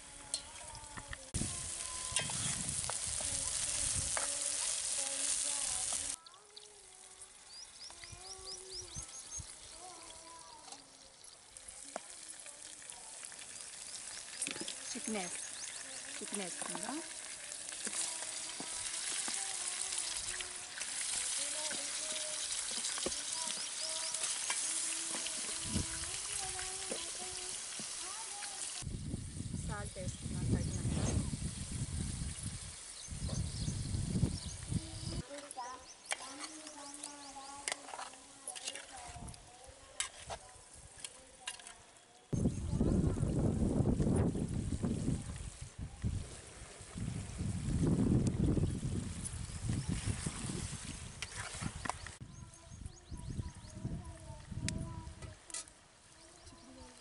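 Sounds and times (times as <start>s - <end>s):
food sizzling in a pot: 0.0s - 52.3s, 52.9s - 57.0s
wood fire crackling: 1.0s - 30.1s
bird chirping: 13.4s - 16.4s.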